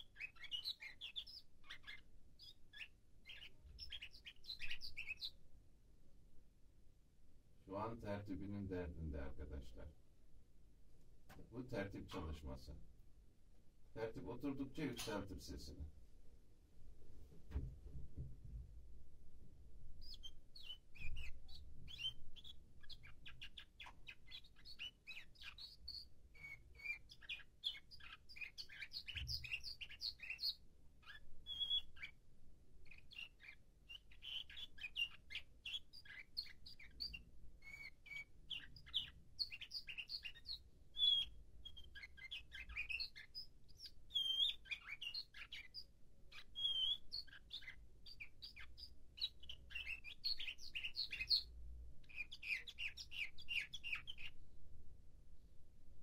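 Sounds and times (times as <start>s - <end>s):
canary singing trills: 0.0s - 5.4s, 19.9s - 54.4s.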